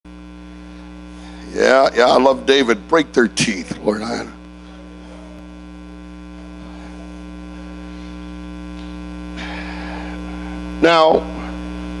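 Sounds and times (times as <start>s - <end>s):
electrical mains hum: 0.1s - 12.0s.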